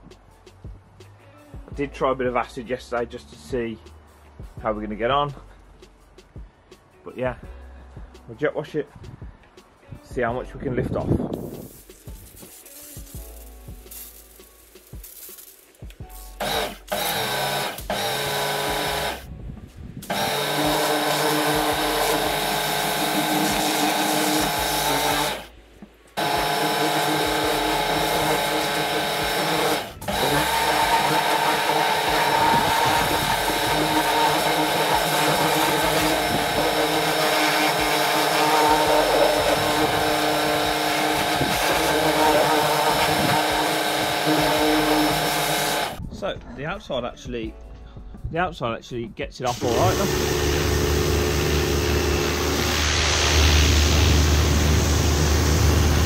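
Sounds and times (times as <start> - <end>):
high-pressure water jet hissing: 11.4 - 19.3, 20.0 - 46.0, 49.5 - 56.0
pressure washer motor humming: 11.7 - 19.3, 20.0 - 25.5, 26.2 - 46.0, 49.5 - 56.0.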